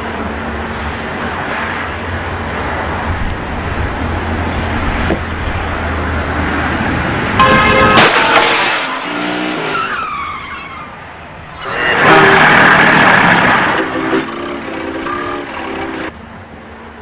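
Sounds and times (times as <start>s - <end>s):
loud road noise: 0.0s - 17.0s
car tyres squealing: 7.4s - 16.1s.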